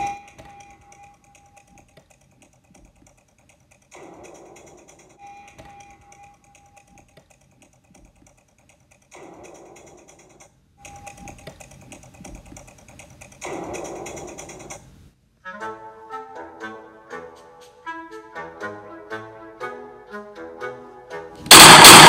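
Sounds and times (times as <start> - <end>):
rapid irregular clicking: 0.0 - 15.1.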